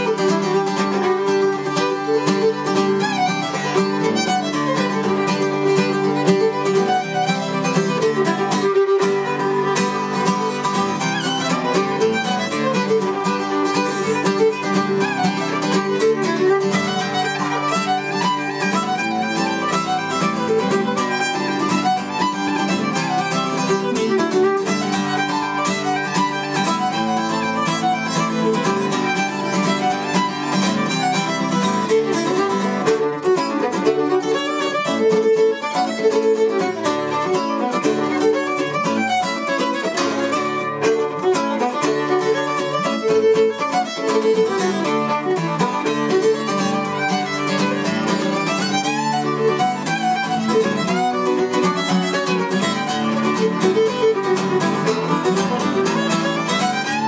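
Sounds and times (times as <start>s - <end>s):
fiddle playing a reel melody: 0.0s - 57.0s
strummed acoustic guitar: 0.0s - 57.0s.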